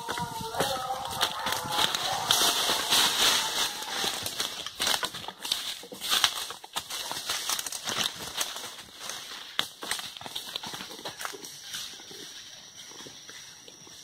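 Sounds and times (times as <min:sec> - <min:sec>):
footsteps crunching through dry leaves: 0:00.0 - 0:14.0
branches swishing: 0:01.0 - 0:06.4.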